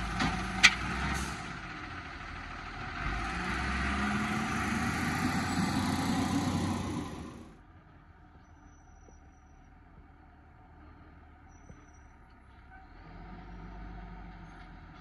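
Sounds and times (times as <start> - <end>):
garbage truck engine rumble: 0.0 - 8.8.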